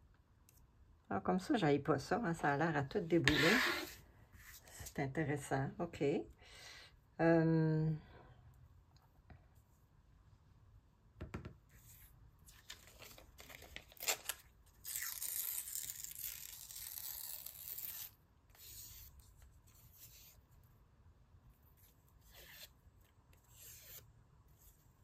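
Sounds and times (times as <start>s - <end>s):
page tearing: 12.6s - 19.1s.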